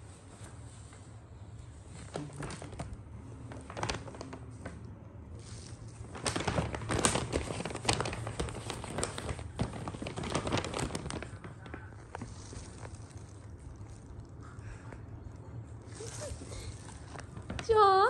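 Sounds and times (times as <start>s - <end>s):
paper bag crinkling: 1.8s - 18.0s.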